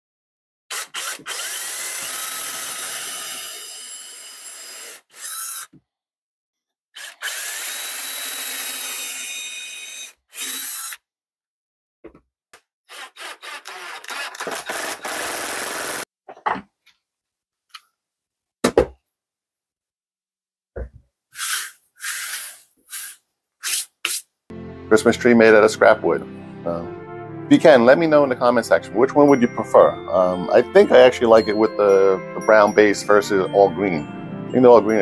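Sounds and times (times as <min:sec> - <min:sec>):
cordless drill driving screws: 0:00.7 - 0:05.7, 0:07.0 - 0:11.0, 0:12.9 - 0:16.0, 0:21.4 - 0:23.2.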